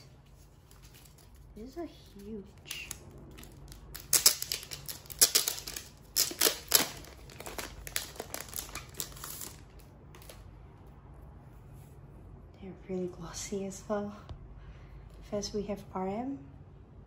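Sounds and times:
plastic sleeve crinkling: 0:00.0 - 0:10.4.

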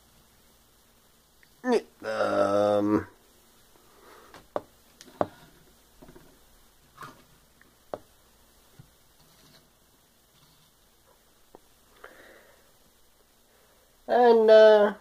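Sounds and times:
plastic figures tapping on wooden table: 0:04.5 - 0:05.4.

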